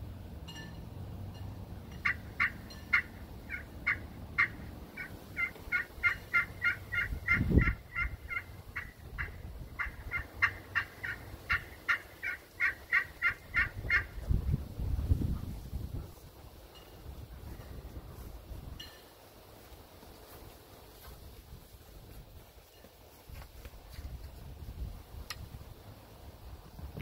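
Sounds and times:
turkey call high notes: 0.5s - 14.2s
wind rumble on microphone: 6.8s - 10.5s, 13.4s - 19.0s, 23.2s - 27.0s.

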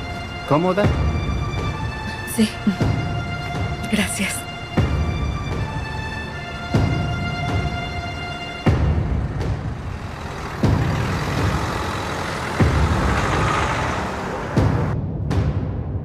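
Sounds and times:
car driving past: 7.7s - 15.0s.

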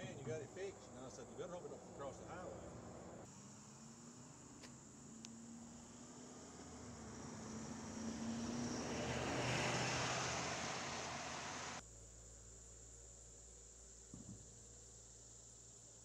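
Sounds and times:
engine noise: 0.0s - 11.8s
crickets and insects chirping: 0.0s - 16.0s.

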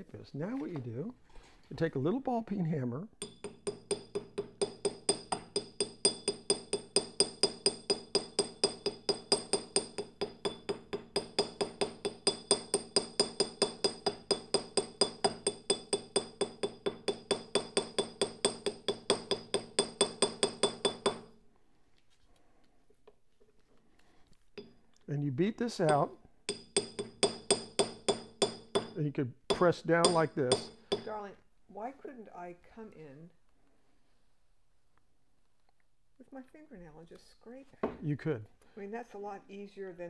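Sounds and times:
hammer tapping on metal: 3.2s - 21.3s, 25.8s - 31.2s.

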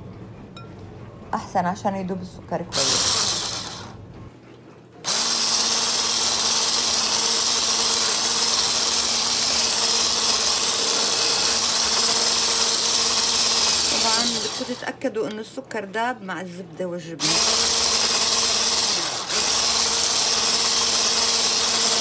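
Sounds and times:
electric mixer whirring: 2.7s - 4.0s, 5.0s - 15.0s, 17.2s - 22.0s.

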